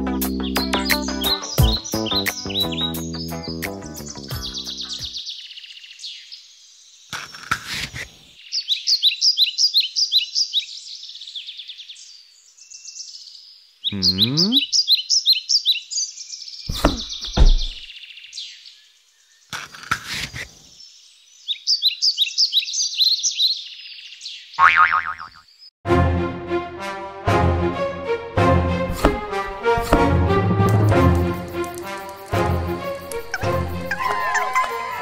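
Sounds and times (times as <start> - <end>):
bird chirping: 0.3 - 7.5, 8.4 - 19.9, 20.6 - 25.7.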